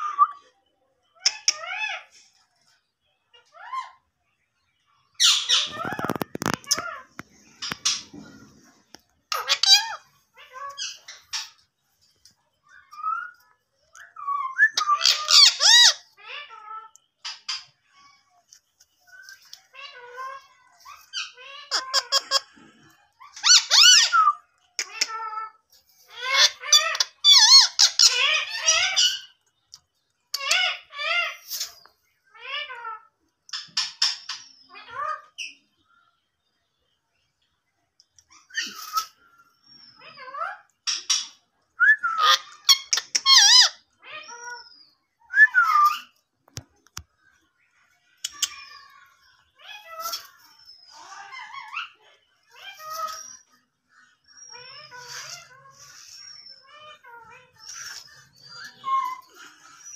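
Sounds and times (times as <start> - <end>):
parakeet squeaking and screeching: 5.2 - 11.6, 14.4 - 18.0, 19.8 - 24.1, 24.8 - 29.4, 42.1 - 44.8, 48.0 - 59.9
parakeet squeaks and whistles: 14.1 - 16.0, 23.4 - 24.5, 41.8 - 44.6.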